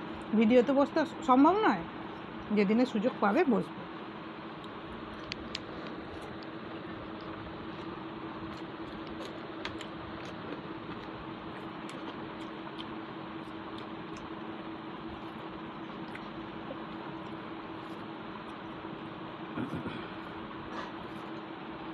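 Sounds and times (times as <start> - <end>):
low background hum: 0.0 - 21.9
clicks and smacks of eating by hand: 4.5 - 20.0.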